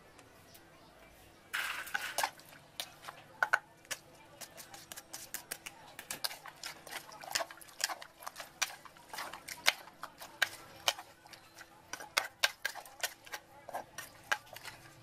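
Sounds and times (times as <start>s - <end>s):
metal spoon tapping clay mortar: 3.4s - 6.4s, 8.3s - 14.8s.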